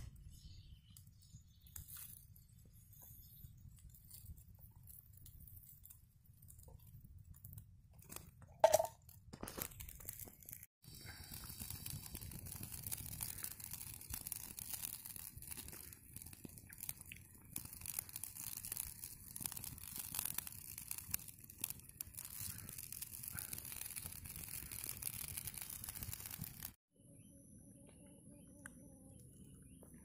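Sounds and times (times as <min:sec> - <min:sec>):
wood fire crackling: 0:00.1 - 0:26.8.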